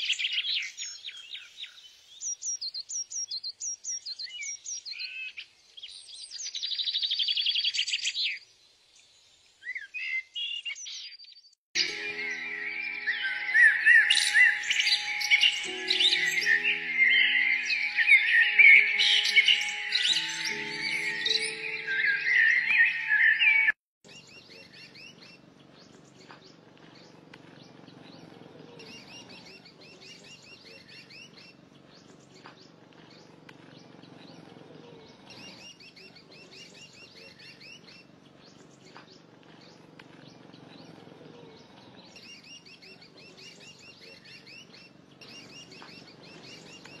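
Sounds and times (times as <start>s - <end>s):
birds chirping: 9.6s - 47.0s
music: 11.8s - 23.8s.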